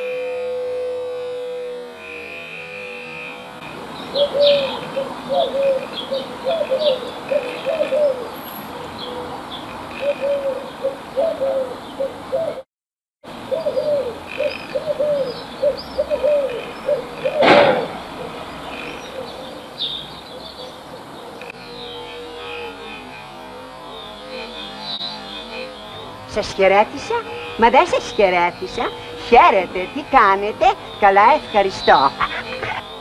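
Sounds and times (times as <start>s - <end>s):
small birds chirping: 4.0s - 12.2s, 13.5s - 22.0s, 24.8s - 33.0s
doves cooing: 4.1s - 12.6s, 13.4s - 21.4s, 26.0s - 33.0s.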